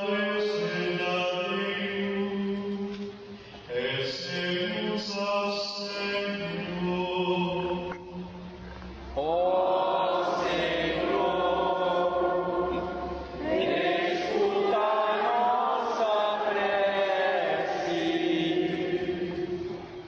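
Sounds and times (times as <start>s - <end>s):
liturgical chant singing: 0.0s - 8.5s, 9.1s - 20.0s.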